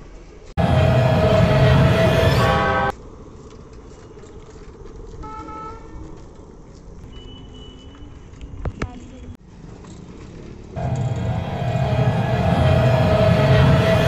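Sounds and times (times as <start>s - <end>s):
street traffic noise: 0.0s - 14.0s
vehicle horn toot: 0.6s - 2.9s, 5.2s - 6.0s.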